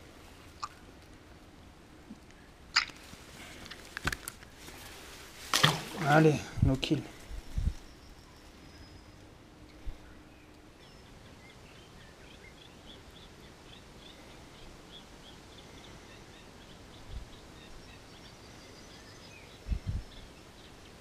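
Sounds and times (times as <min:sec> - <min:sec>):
faint outdoor background: 0:00.0 - 0:21.0
small birds chirping: 0:06.0 - 0:21.0.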